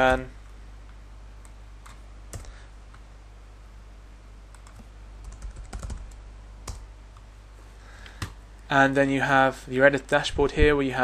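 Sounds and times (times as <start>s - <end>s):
faint low hum: 0.0s - 11.0s
computer keyboard typing: 1.4s - 2.5s, 4.5s - 6.9s.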